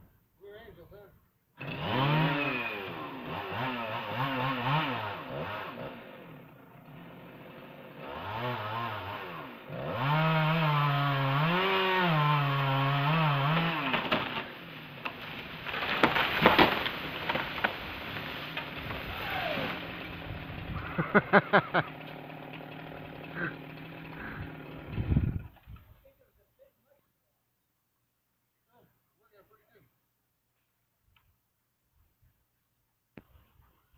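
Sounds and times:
chainsaw revving: 1.6s - 25.7s
tree limb crashing down: 12.8s - 20.8s
wood cracking: 12.9s - 20.6s.

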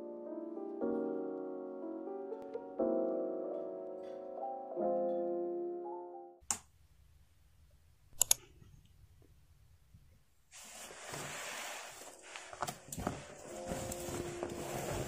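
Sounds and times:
backpack rustling hiss: 10.5s - 15.0s.

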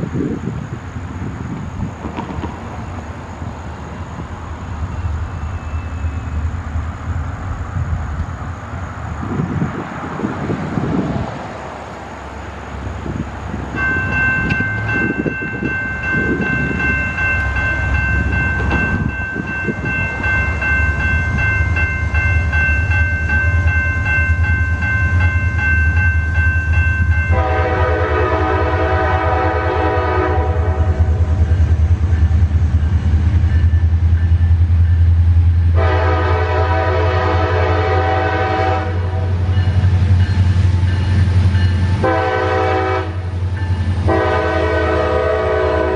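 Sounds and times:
diesel locomotive rumble: 0.0s - 45.9s
railroad crossing bell ringing: 4.8s - 6.5s, 13.6s - 30.4s, 31.0s - 45.9s
locomotive air horn blasts: 27.3s - 31.4s, 35.7s - 39.4s, 42.0s - 43.3s, 44.0s - 45.9s.

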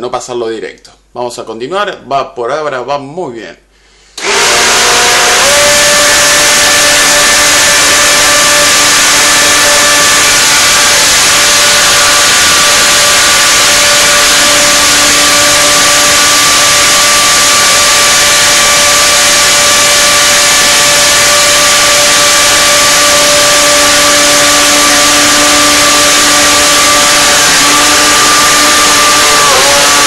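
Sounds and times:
blender motor whining: 4.2s - 30.0s.

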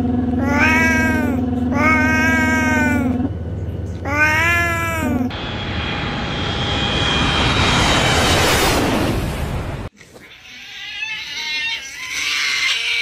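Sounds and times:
loud rushing roar: 0.0s - 9.9s
cat meowing: 0.4s - 3.2s, 4.0s - 5.3s
faint high whine: 4.6s - 9.9s.

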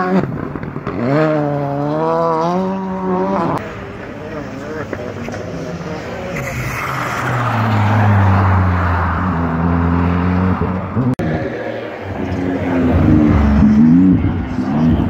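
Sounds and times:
race car engine revving past: 4.2s - 15.0s.

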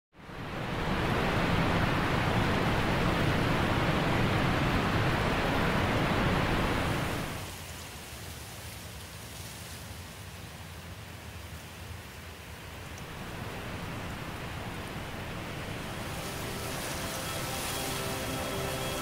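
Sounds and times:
steady rushing noise: 0.3s - 7.6s, 13.0s - 19.0s.

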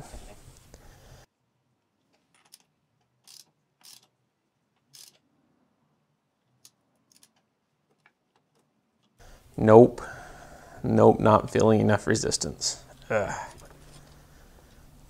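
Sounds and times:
ratchet clicks: 2.4s - 4.1s, 4.9s - 5.2s.

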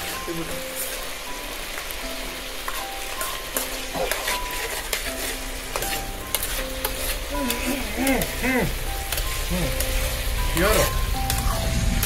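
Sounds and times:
chickpeas sizzling in oil: 0.0s - 12.0s
steel spoon scraping a pan: 2.6s - 11.6s.

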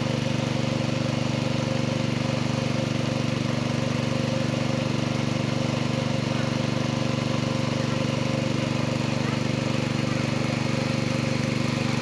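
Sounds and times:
small engine running steadily: 0.0s - 12.0s.

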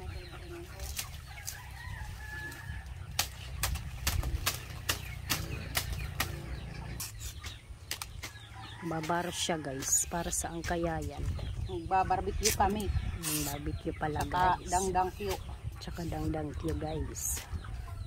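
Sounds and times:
chickens clucking: 0.0s - 18.0s
palm frond rustling: 0.5s - 6.4s
knife cutting palm leaves: 3.1s - 6.4s, 12.4s - 15.4s.

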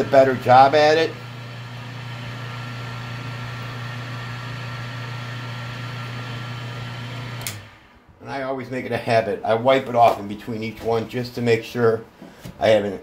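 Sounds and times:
wood lathe motor humming: 0.0s - 8.0s.

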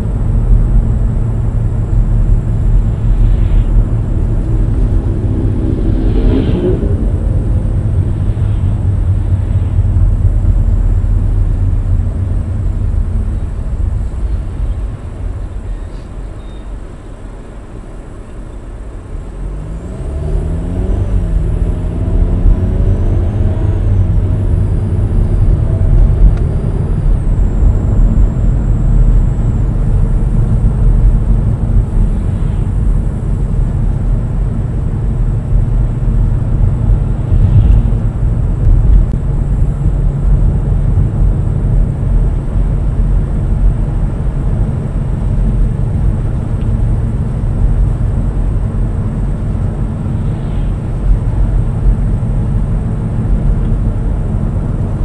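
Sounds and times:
car road and engine rumble: 0.0s - 55.0s
engine note rising and falling: 0.6s - 14.6s, 19.4s - 33.6s.

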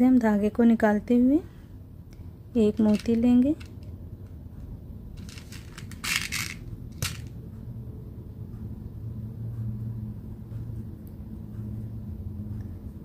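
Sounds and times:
low steady hum: 0.0s - 13.0s
beads rustling clatter: 2.7s - 3.9s, 5.2s - 7.3s.

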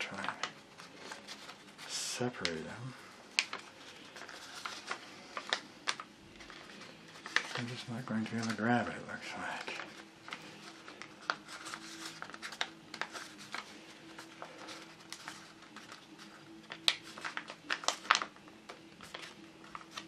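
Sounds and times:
paper crinkling and crackling: 0.0s - 20.0s.

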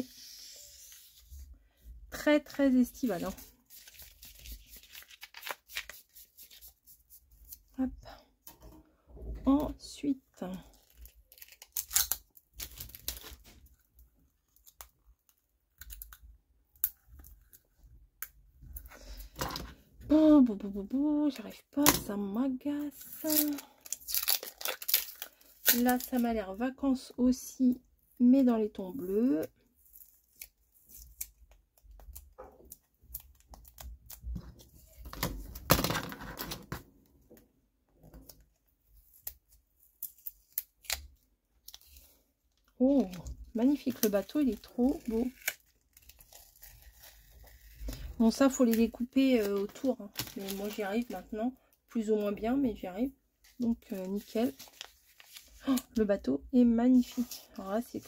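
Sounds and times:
paper and plastic rustling: 2.9s - 6.9s, 46.1s - 51.3s, 53.4s - 55.9s.

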